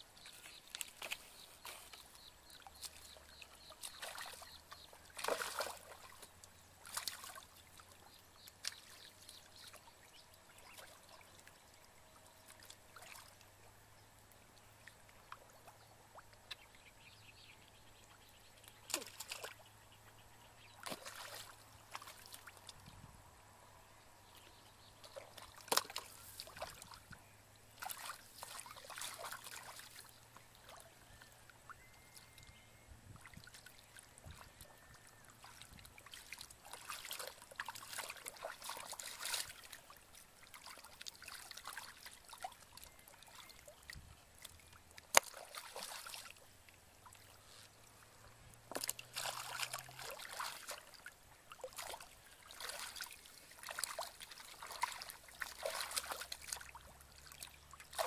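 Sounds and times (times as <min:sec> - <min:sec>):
hands splashing in muddy water: 0:00.2 - 0:07.5, 0:20.8 - 0:22.7, 0:25.0 - 0:27.0, 0:27.8 - 0:30.0, 0:45.0 - 0:46.4, 0:48.7 - 0:51.0, 0:51.6 - 0:56.8, 0:57.4 - 0:58.0.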